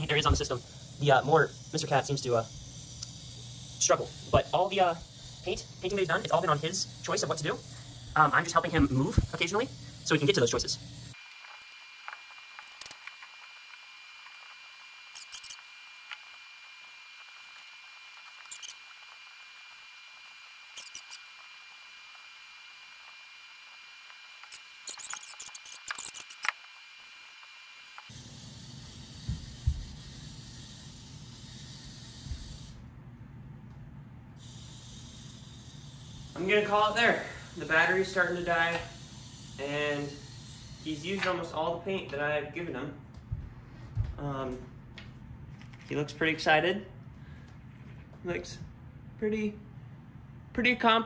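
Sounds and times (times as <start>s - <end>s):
robot motor whine: 0.0s - 32.8s, 34.4s - 41.4s
wheel clicks and squeaks: 24.5s - 26.5s.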